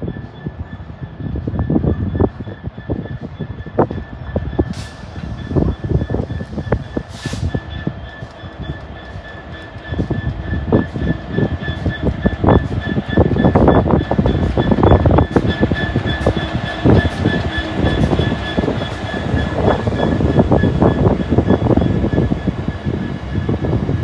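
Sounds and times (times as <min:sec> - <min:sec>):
steady high whine: 0:00.0 - 0:24.0
train wheels knocking over rail joints: 0:01.9 - 0:24.0.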